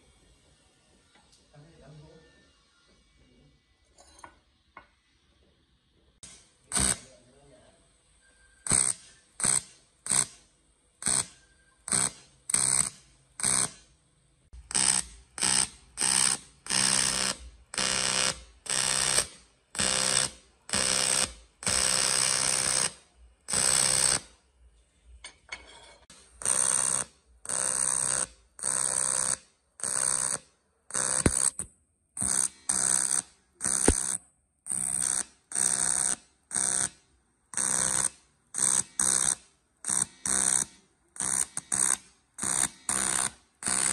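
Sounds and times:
welding arc buzzing: 6.2 - 7.4, 8.6 - 13.9, 14.6 - 24.4, 26.1 - 43.9.

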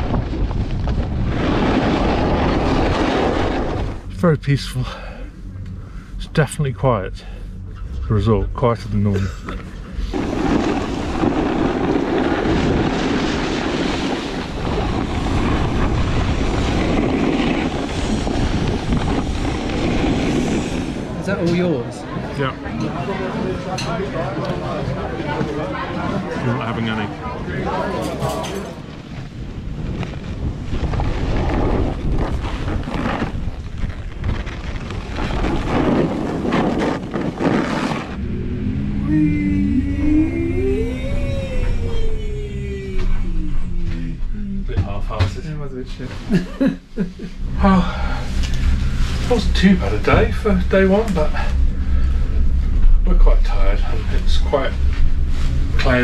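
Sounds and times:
wind rushing over microphone: 0.0 - 4.1, 7.0 - 22.6, 28.9 - 45.3
snowboard edge scraping snow: 10.2 - 21.0, 29.8 - 38.2
ski edges scraping snow: 30.8 - 38.2.

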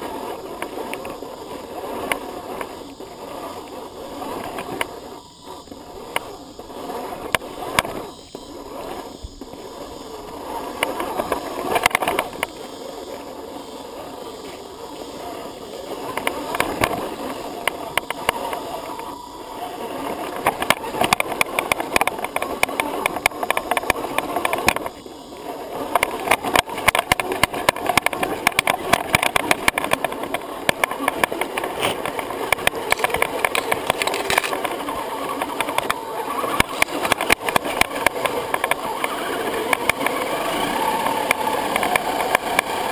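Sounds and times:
electric motor and drivetrain: 0.0 - 42.9
parts rattling: 25.9 - 38.9
tyres clattering on stones: 27.3 - 34.8.

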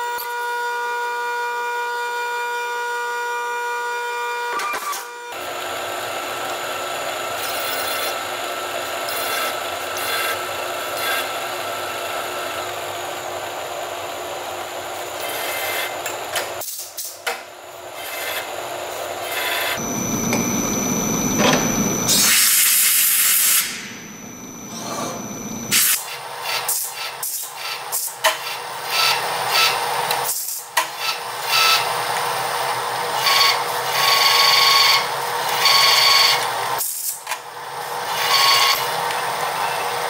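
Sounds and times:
milling machine grinding metal: 19.2 - 25.9
high whine: 19.7 - 26.0.

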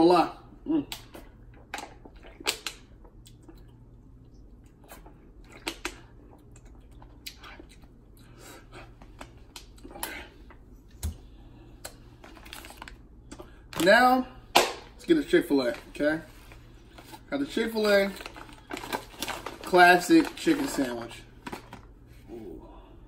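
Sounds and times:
low steady hum: 0.0 - 23.0
plastic water bottle crinkling: 17.9 - 21.8.

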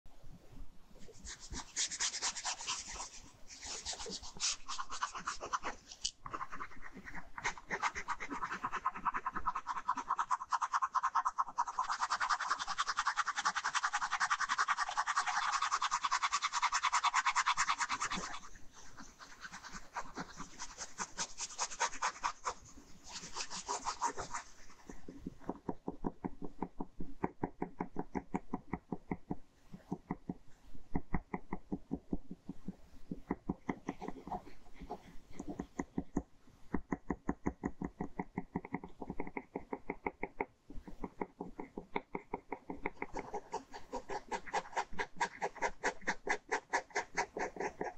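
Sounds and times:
ballpoint pen scratching on paper: 1.0 - 47.9.

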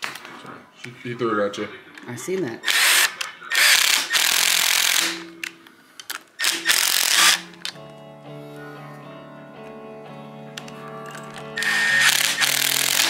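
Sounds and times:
impact wrench hammering: 2.7 - 5.5, 6.4 - 7.7, 11.6 - 13.0
music: 3.8 - 13.0.

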